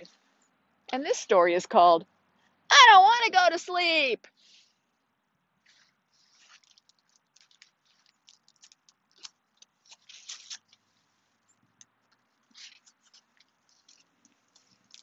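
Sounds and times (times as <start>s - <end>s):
faint paper rustles: 4.3s - 5.0s, 5.6s - 15.0s
book pages turning: 5.6s - 15.0s.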